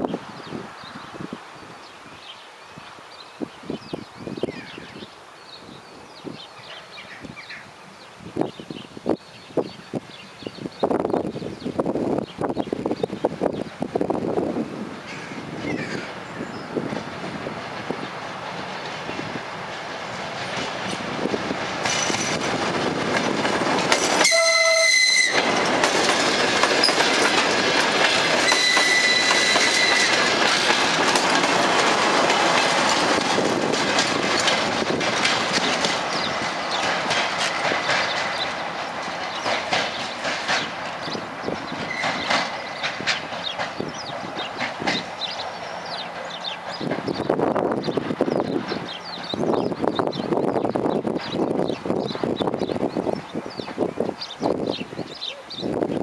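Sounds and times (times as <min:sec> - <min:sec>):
train engine and wheels rumbling: 0:00.0 - 0:56.0
wheels clicking over rail joints: 0:16.8 - 0:51.8
train horn blast: 0:24.2 - 0:25.5, 0:28.4 - 0:30.2.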